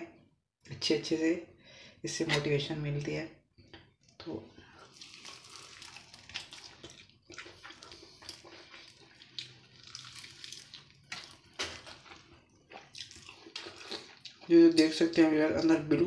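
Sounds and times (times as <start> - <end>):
crispy chicken coating crunching: 4.8 - 14.5.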